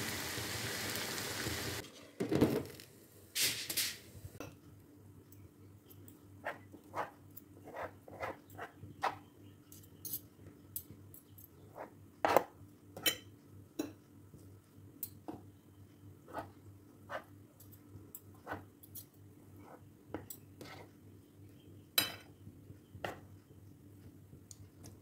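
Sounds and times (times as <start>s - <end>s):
forks scraping cutting board: 6.4s - 9.2s, 11.8s - 12.5s.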